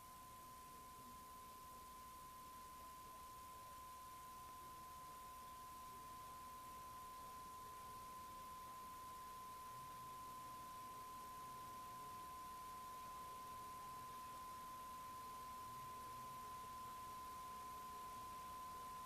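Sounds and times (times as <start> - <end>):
faint steady test tone: 0.0 - 19.0
low hiss: 0.0 - 19.0.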